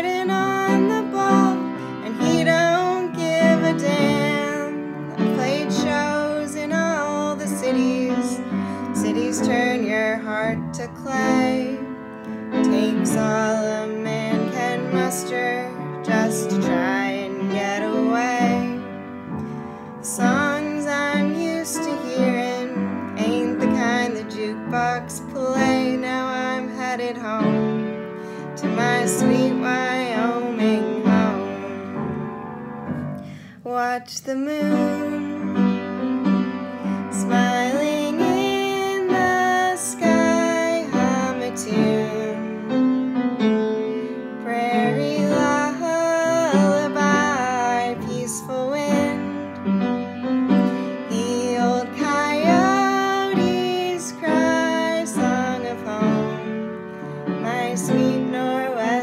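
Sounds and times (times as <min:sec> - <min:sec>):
woman singing wordless melody: 0:00.0 - 0:59.0
instrumental accompaniment: 0:34.6 - 0:58.4.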